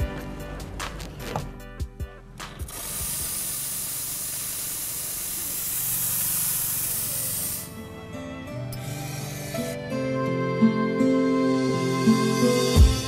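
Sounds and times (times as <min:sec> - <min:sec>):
music: 0:00.0 - 0:13.0
steam wand hissing: 0:02.7 - 0:07.8, 0:08.7 - 0:09.8.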